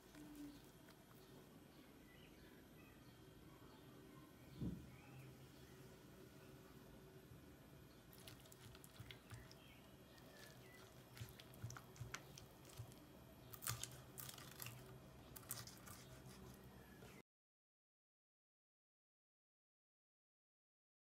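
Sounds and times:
spatula crunching through casserole: 8.1s - 17.2s.

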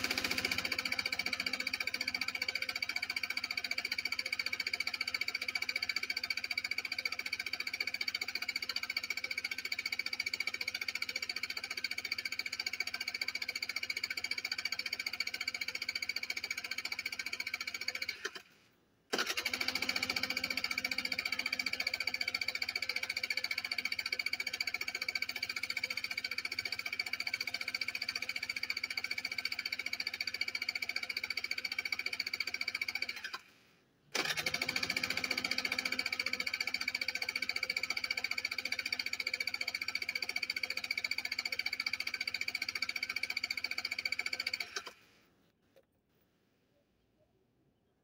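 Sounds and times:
scooter starter cranking engine: 0.0s - 18.5s, 19.1s - 33.5s, 34.1s - 45.0s.

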